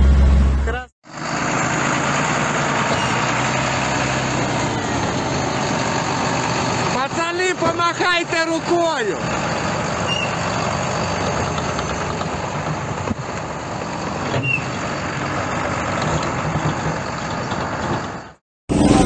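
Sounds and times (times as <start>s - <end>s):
diesel engine running: 0.0s - 19.0s
short high squeak: 2.9s - 3.3s, 10.1s - 10.4s, 14.3s - 14.8s.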